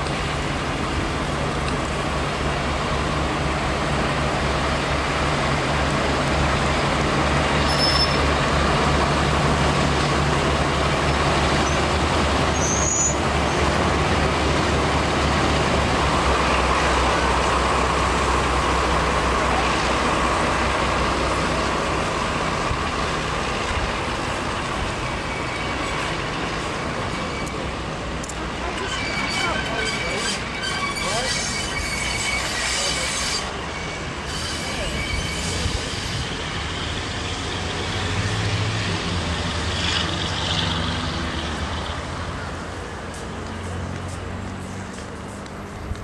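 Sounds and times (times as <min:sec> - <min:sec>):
diesel locomotive engine running: 0:00.0 - 0:46.0.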